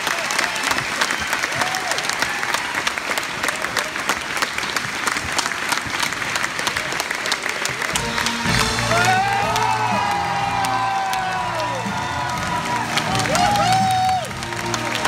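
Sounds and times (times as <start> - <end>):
audience applauding: 0.0 - 15.0
orchestra playing low notes: 7.9 - 15.0.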